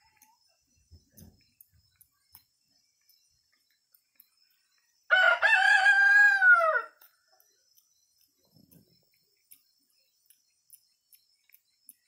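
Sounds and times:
rooster crowing: 0:05.1 - 0:07.0.

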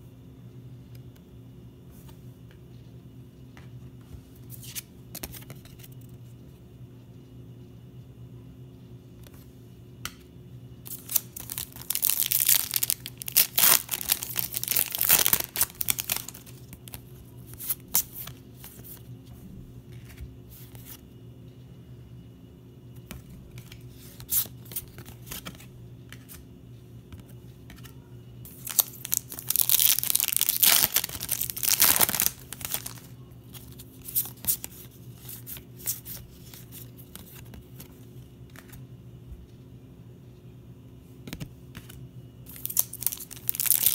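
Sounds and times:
plastic wrappers tearing and crinkling: 0:10.9 - 0:17.0, 0:28.5 - 0:35.9, 0:42.5 - 0:43.9
cards flicking and rustling: 0:10.9 - 0:19.0, 0:23.1 - 0:26.5, 0:28.5 - 0:38.8.

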